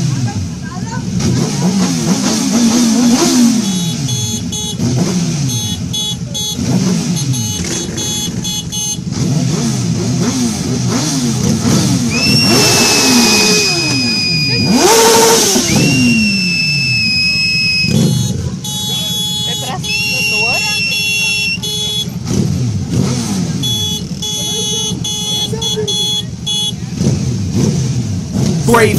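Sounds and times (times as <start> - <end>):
motorcycle engines revving: 0.0 - 28.9
high steady squeal: 12.2 - 17.9.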